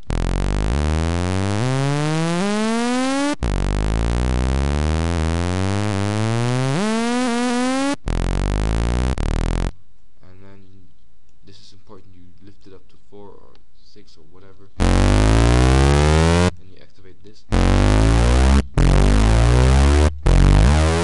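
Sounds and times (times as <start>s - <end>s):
buzzy synthesizer bass gliding: 0.0s - 9.7s, 14.8s - 16.6s, 17.5s - 21.0s.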